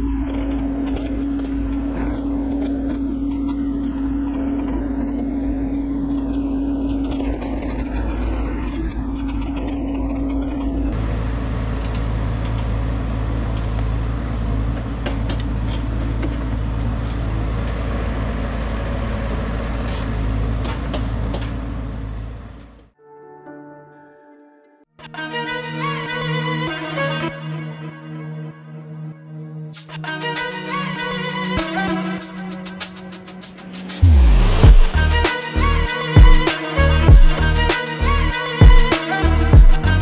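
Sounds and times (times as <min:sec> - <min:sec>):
excavator diesel engine running: 0:00.0 - 0:22.9, 0:29.9 - 0:40.0
string music: 0:23.0 - 0:40.0.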